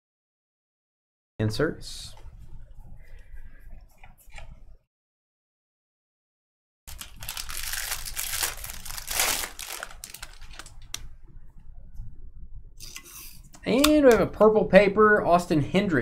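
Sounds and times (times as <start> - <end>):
cards rustling and clicking: 6.9 - 11.0
foil wrapper tearing and crinkling: 6.9 - 11.0.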